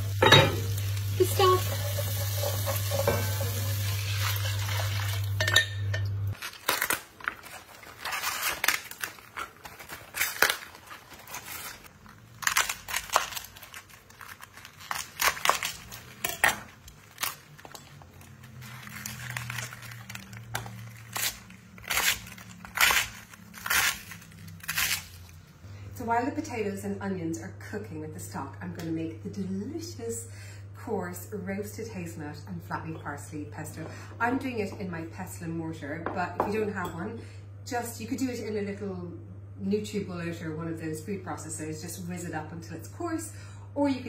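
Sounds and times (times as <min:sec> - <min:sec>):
pan sizzling: 0:00.0 - 0:06.4.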